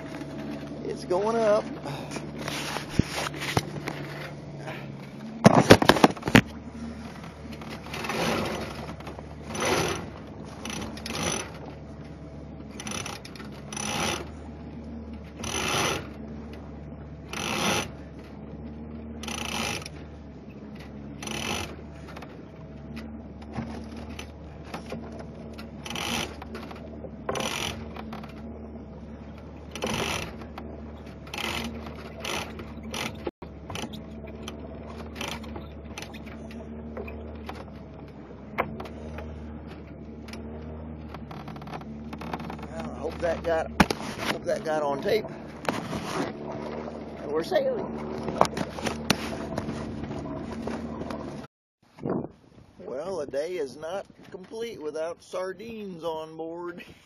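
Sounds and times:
low motor hum: 0.0 - 57.0
halyard ratcheting through blocks: 7.6 - 11.6, 12.7 - 14.4, 15.3 - 16.2, 17.2 - 18.0, 19.2 - 20.0, 21.2 - 22.2, 25.5 - 28.4, 29.7 - 37.6.

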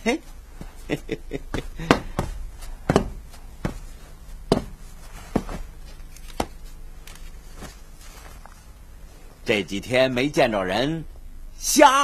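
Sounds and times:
cane tapping on hard floor: 1.5 - 3.9, 4.5 - 5.6.

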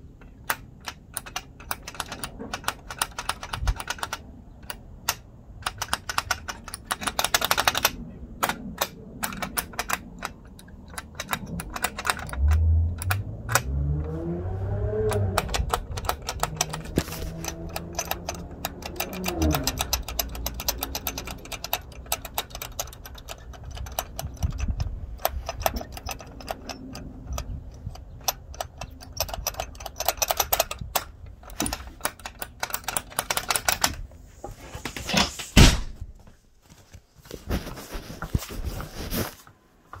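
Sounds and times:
phone handling noise: 15.0 - 34.1.

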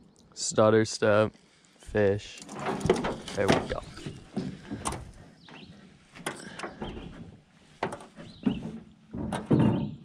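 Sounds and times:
knocks and handling noises: 2.4 - 10.0.

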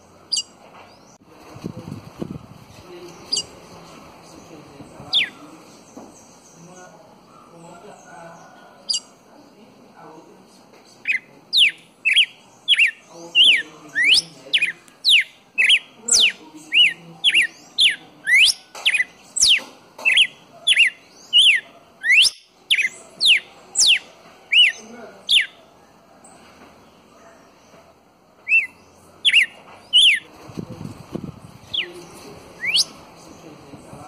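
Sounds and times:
bird chirp: 0.0 - 10.2, 10.9 - 34.0
bird whistling clear notes: 32.6 - 32.9.

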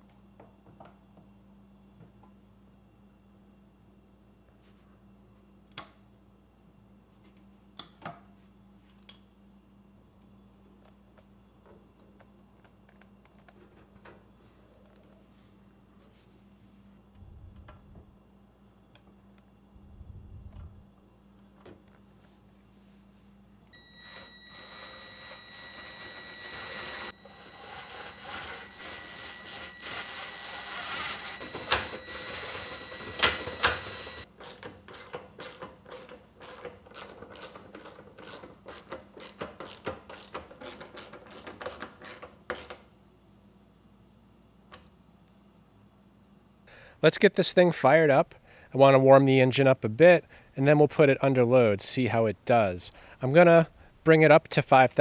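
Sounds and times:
impact driver whining: 23.8 - 35.1.

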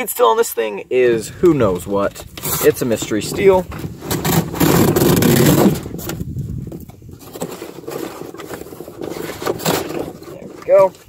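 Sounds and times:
knife cutting cardboard: 2.3 - 6.2, 7.2 - 10.8
cardboard tearing: 3.7 - 6.2, 7.2 - 11.0.

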